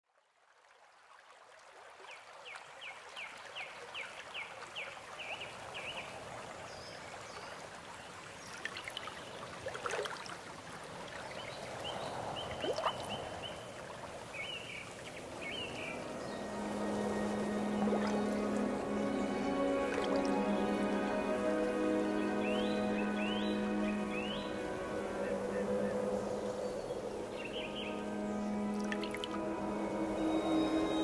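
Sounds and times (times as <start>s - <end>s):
steady wash of noise: 15.1s - 31.0s
low held music tone: 15.2s - 31.0s
soft sweeps: 15.2s - 31.0s.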